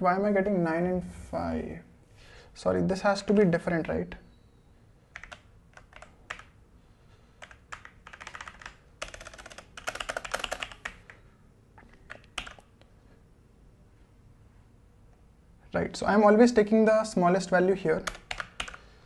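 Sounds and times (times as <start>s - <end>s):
mechanical keyboard typing: 5.1s - 6.6s, 7.4s - 11.1s, 11.9s - 12.7s, 18.0s - 18.8s.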